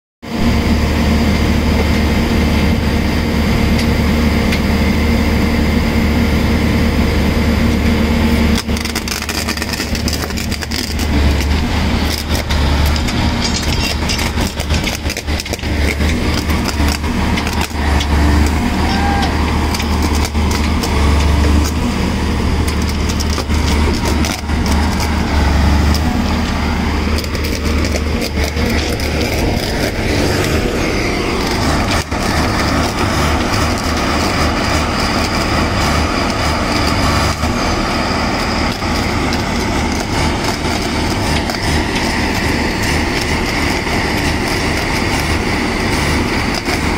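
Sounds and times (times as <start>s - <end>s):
welding machine drone: 0.2s - 46.9s
clicks and crackles: 8.5s - 21.9s, 22.5s - 30.6s, 31.4s - 37.6s, 38.4s - 46.9s.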